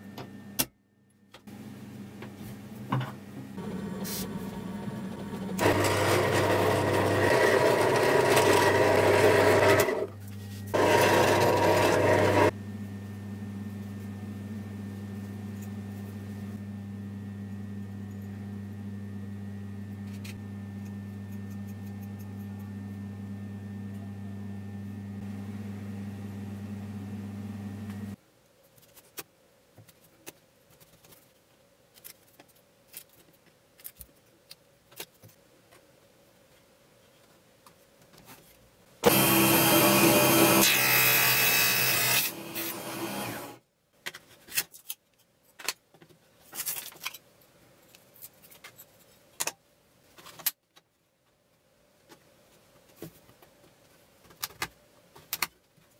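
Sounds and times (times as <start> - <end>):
motor hum: 1.4 - 28.2, 39.0 - 43.6
loud machine noise: 3.6 - 10.1, 10.8 - 12.6, 39.0 - 43.6.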